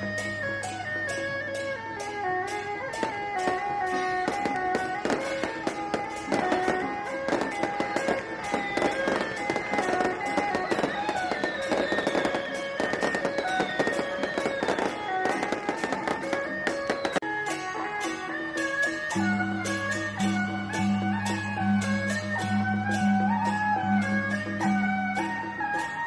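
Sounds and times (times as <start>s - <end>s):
procession music: 0.0s - 26.0s
firecrackers popping: 2.8s - 17.2s.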